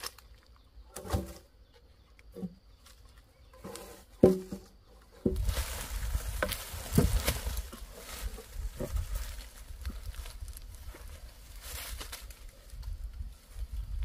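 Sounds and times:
rustling with low rumble: 0:00.0 - 0:14.0
logs knocking together: 0:03.6 - 0:05.7, 0:06.3 - 0:07.9.

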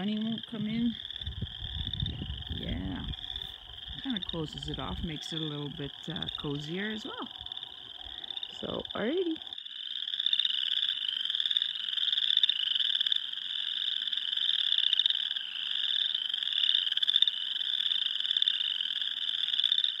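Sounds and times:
chorus of trilling animals: 0:00.0 - 0:11.7.

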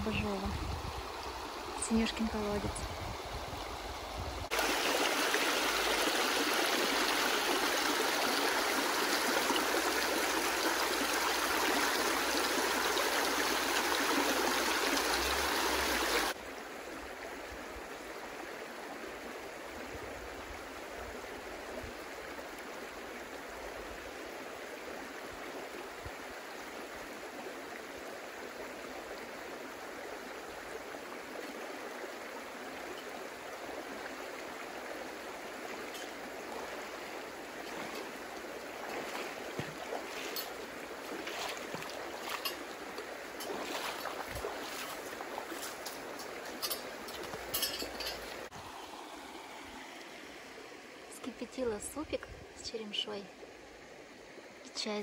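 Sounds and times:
river rushing: 0:00.9 - 0:17.1, 0:32.5 - 0:51.1.

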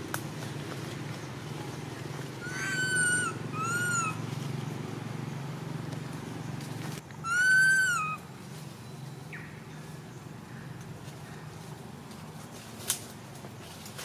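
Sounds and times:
baby monkey crying: 0:02.4 - 0:04.2, 0:07.2 - 0:08.2.

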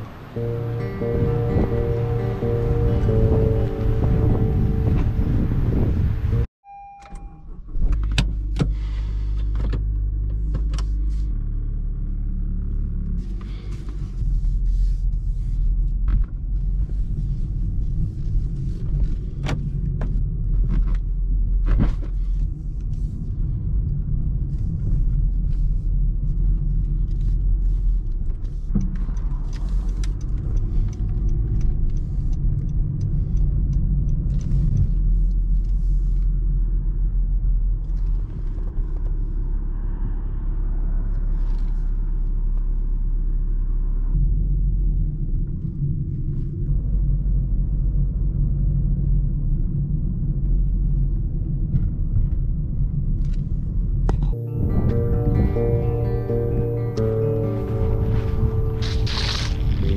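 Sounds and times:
car engine and road rumble: 0:00.0 - 0:59.9
short beep: 0:06.3 - 0:07.6.

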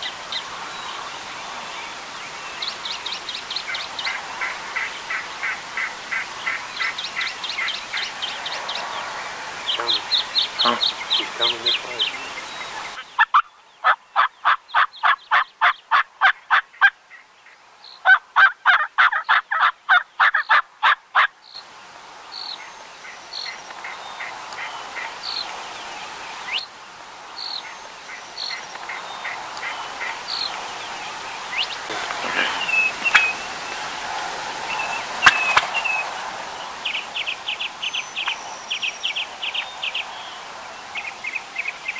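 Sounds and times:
small birds chirping: 0:00.0 - 0:20.6, 0:21.4 - 0:41.9
turkey hen yelping: 0:12.7 - 0:16.9, 0:18.0 - 0:21.3, 0:31.6 - 0:33.5, 0:35.2 - 0:36.0.

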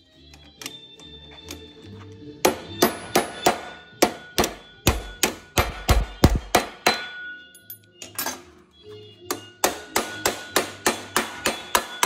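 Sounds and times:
hammer ringing on sheet steel: 0:02.5 - 0:07.5, 0:09.3 - 0:12.0.

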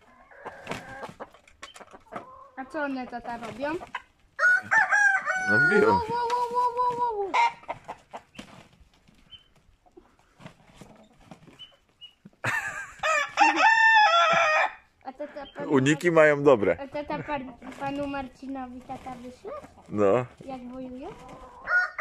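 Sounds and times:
soft clucking: 0:00.0 - 0:04.8
rooster crowing: 0:04.4 - 0:06.0, 0:12.9 - 0:14.8, 0:21.5 - 0:22.0.

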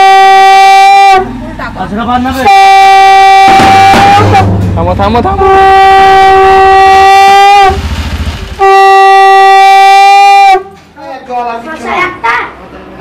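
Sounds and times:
conch shell blasts: 0:00.0 - 0:01.3, 0:02.4 - 0:10.7.

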